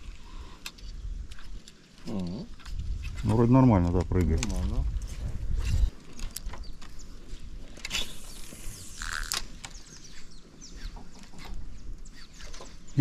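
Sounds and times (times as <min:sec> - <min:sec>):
fishing reel ticking and clicking: 0:08.1 - 0:09.4.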